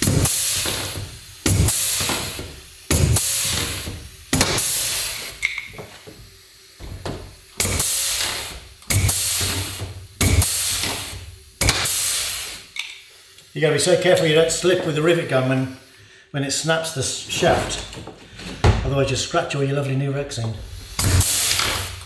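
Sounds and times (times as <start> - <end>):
pneumatic rivet gun bursts: 0.0 - 13.5, 20.6 - 22.0
air hiss: 0.0 - 18.8, 20.4 - 22.0.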